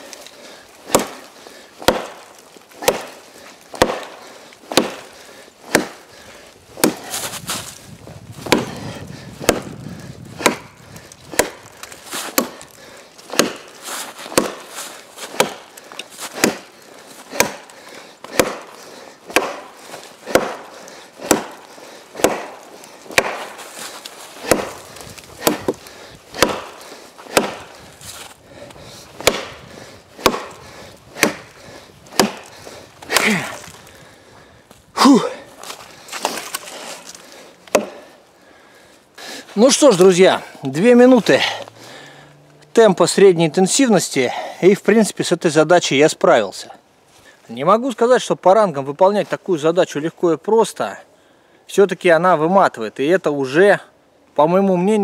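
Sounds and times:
blade chopping log: 0.8 - 6.1, 6.7 - 7.6, 8.4 - 27.8, 29.2 - 33.8, 37.7 - 38.1.

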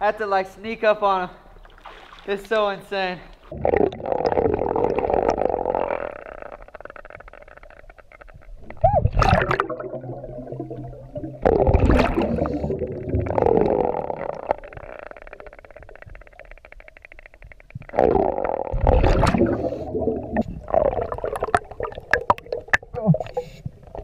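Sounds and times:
exhaled bubbles underwater: 3.4 - 24.0
diver breathing through regulator: 12.2 - 13.0.

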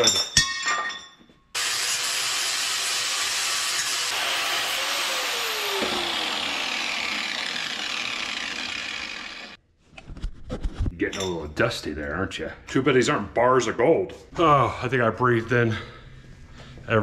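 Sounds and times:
angle grinder grinding steel: 1.6 - 9.6.

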